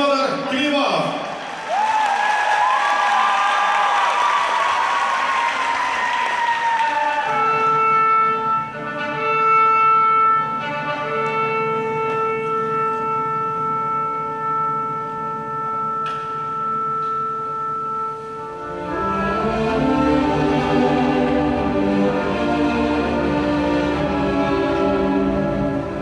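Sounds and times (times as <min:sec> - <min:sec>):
applause: 0:01.2 - 0:07.4
slow instrumental music over loudspeakers: 0:07.2 - 0:26.0.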